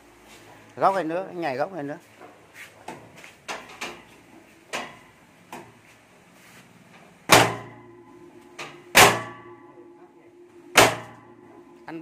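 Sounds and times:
loud metallic bang ringing: 0:07.3 - 0:12.0.

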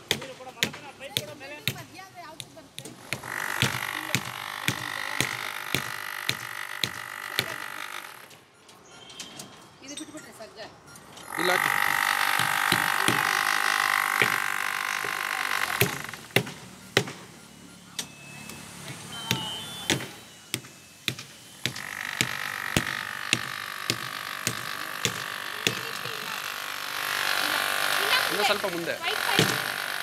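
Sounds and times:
sharp knocks: 0:02.8 - 0:07.6, 0:12.3 - 0:13.5, 0:14.2 - 0:17.3, 0:19.3 - 0:25.9, 0:29.3 - 0:29.8.

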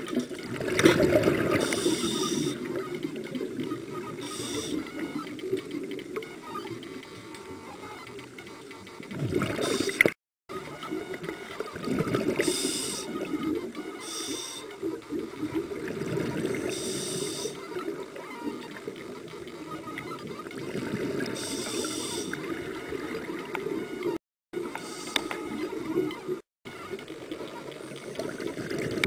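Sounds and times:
underwater bubbling rumble: 0:00.0 - 0:06.2, 0:08.9 - 0:10.0, 0:14.8 - 0:21.4
regulator hiss bursts: 0:01.6 - 0:02.6, 0:04.2 - 0:04.9, 0:12.4 - 0:13.1, 0:14.0 - 0:14.7, 0:16.7 - 0:17.6, 0:21.4 - 0:22.4.

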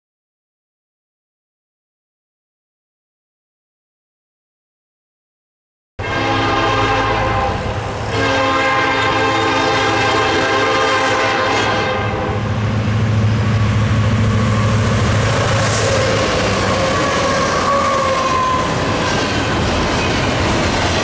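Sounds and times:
train horn blasts: 0:06.0 - 0:12.6, 0:14.3 - 0:18.8
train engines and wheels rumbling: 0:06.0 - 0:21.0.

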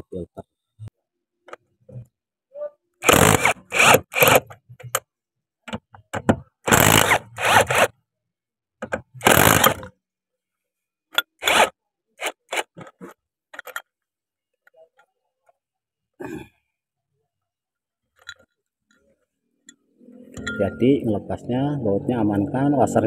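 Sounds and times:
cordless power driver bursts: 0:03.0 - 0:04.5, 0:06.7 - 0:07.9, 0:09.2 - 0:09.8
bolts and washers clicking: 0:12.7 - 0:13.9.

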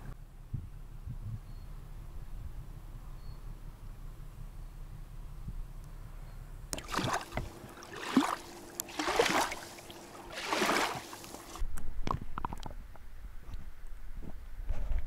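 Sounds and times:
river water sloshing and splashing: 0:06.8 - 0:11.6.

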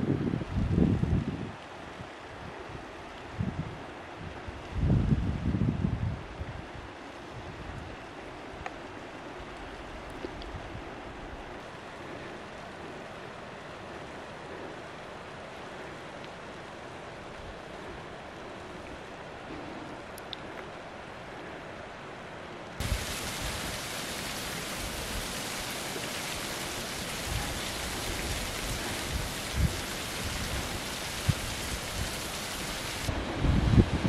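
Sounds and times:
waterfall splashing on rock: 0:22.8 - 0:33.1
wind thumps on microphone: 0:27.2 - 0:34.0.

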